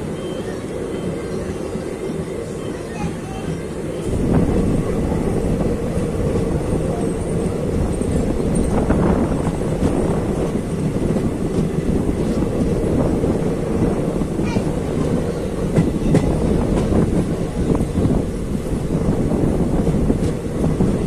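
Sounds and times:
train wheels rumbling on rails: 0:00.0 - 0:21.0
clicks of train wheels: 0:14.4 - 0:17.1.

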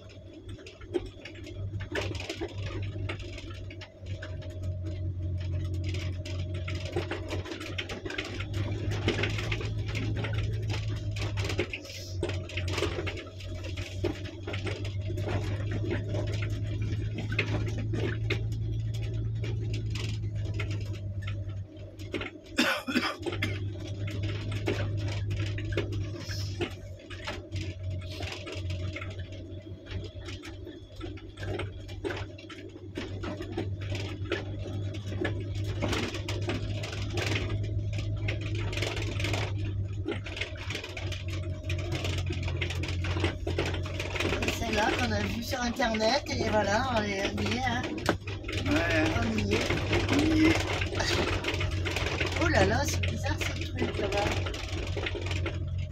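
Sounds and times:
interior rattles: 0:00.0 - 0:55.9
low car engine drone: 0:00.0 - 0:55.9
tyres crackling on gravel: 0:00.0 - 0:55.9.

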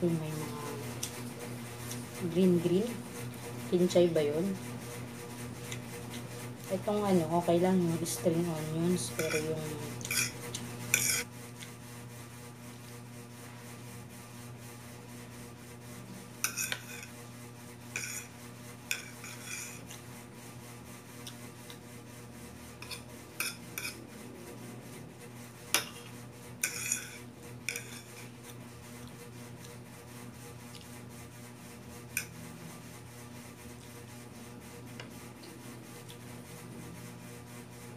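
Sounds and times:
steady low hum: 0:00.0 - 0:37.9
fork scraping a ceramic plate: 0:08.9 - 0:11.3, 0:16.3 - 0:17.2, 0:17.8 - 0:20.1, 0:22.8 - 0:24.2, 0:25.7 - 0:29.7, 0:32.0 - 0:32.4.

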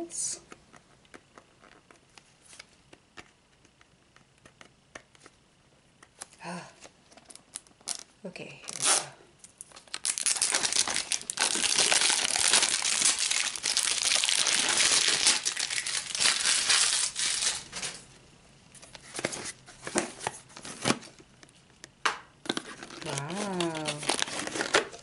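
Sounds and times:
plastic shrink-wrap crinkling: 0:08.7 - 0:18.1, 0:22.5 - 0:25.0
plastic packaging clicks: 0:09.4 - 0:18.0.

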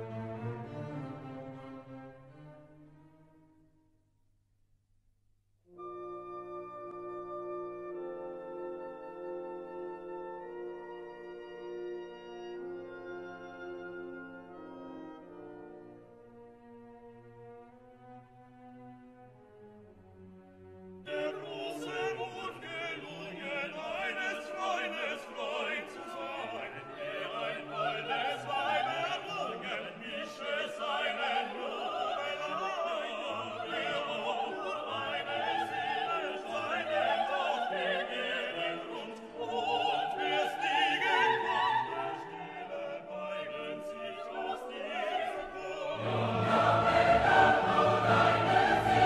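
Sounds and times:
operatic singing with orchestra: 0:21.0 - 0:49.0.

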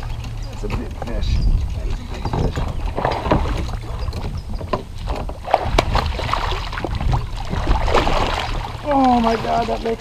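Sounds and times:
water splashing: 0:00.0 - 0:10.0
wind rumble on microphone: 0:00.0 - 0:10.0
knocks on kayak: 0:02.2 - 0:03.8.

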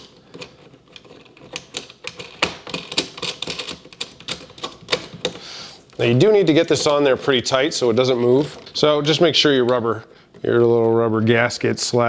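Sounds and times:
plastic nut clicking while threaded: 0:00.0 - 0:05.4.

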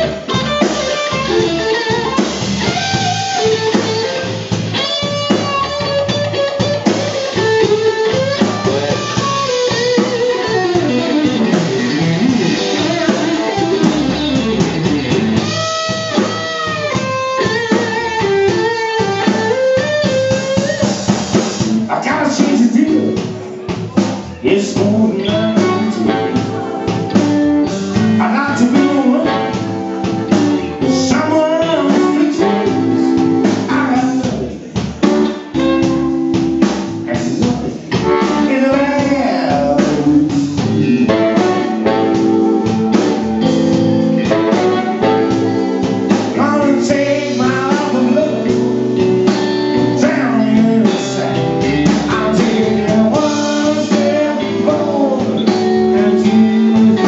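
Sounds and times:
blues harmonica: 0:00.0 - 0:21.8, 0:24.9 - 0:34.1, 0:35.1 - 0:57.0
drum kit: 0:00.0 - 0:57.0
electric bass: 0:00.0 - 0:57.0
electric guitar: 0:00.0 - 0:57.0
man singing: 0:07.2 - 0:14.6, 0:21.6 - 0:34.9, 0:37.0 - 0:42.3, 0:46.1 - 0:57.0.

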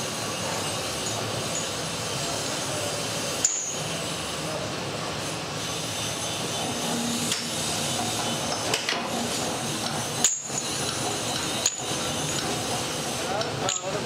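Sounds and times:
workshop noise: 0:00.0 - 0:14.0
steel bars clinking and knocking: 0:10.2 - 0:12.6, 0:13.4 - 0:14.0.

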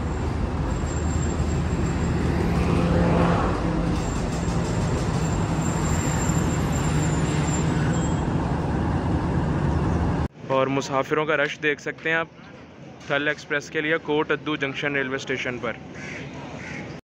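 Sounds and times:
diesel locomotive humming: 0:00.0 - 0:10.3.

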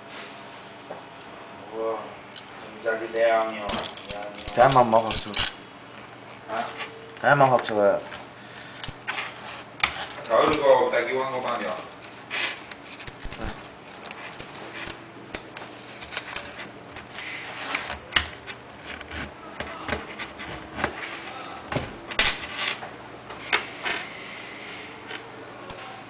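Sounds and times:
faint steady hum: 0:00.0 - 0:26.0
wallet handling rustling: 0:08.9 - 0:19.4.

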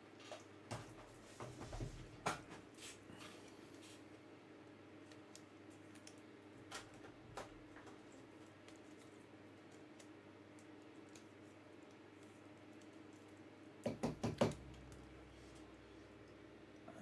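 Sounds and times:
faint room hum: 0:00.0 - 0:17.0.

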